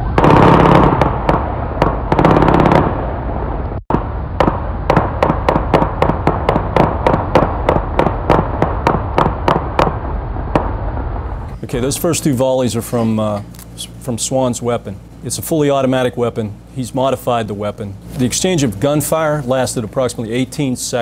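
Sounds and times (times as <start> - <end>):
separate gunshots: 0.0 - 11.6
automatic gunfire bursts: 0.1 - 2.9.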